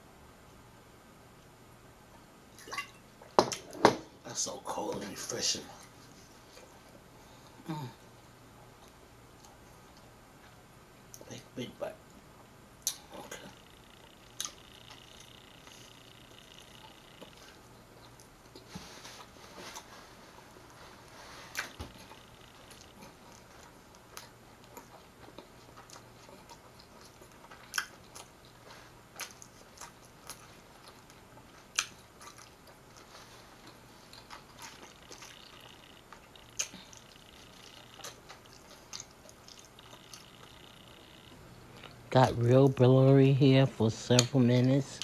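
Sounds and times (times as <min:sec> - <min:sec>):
person chewing food: 0:12.8 - 0:42.1
mouth clicks and smacks: 0:34.6 - 0:40.6.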